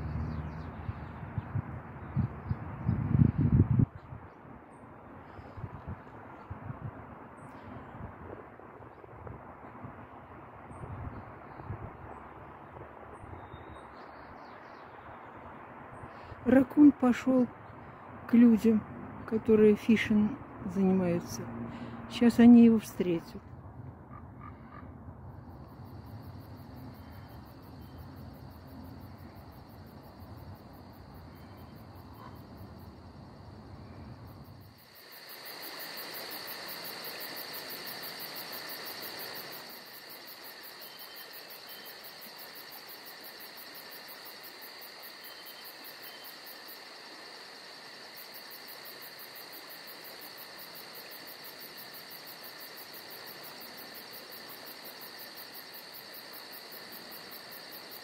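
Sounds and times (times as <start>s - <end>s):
insects trilling: 24.4s - 58.0s.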